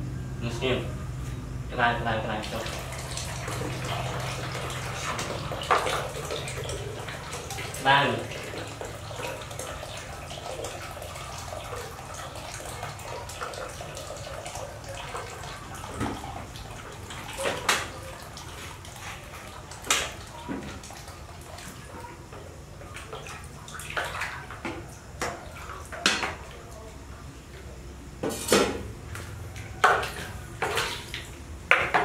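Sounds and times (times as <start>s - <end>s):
water pouring into plastic basin: 2.3s - 22.1s, 22.9s - 26.6s.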